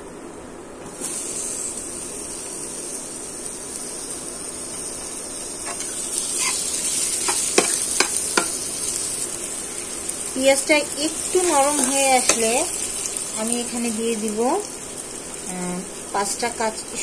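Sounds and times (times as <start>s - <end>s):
onions sizzling in oil: 0.8s - 17.0s
metal spatula scraping pan: 5.6s - 8.6s.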